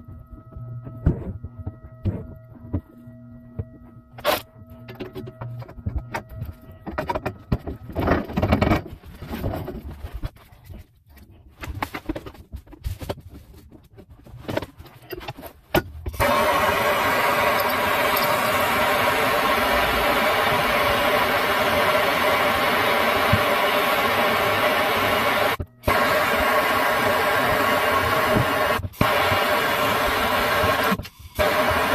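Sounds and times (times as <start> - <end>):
gas torch hissing: 16.1 - 31.9.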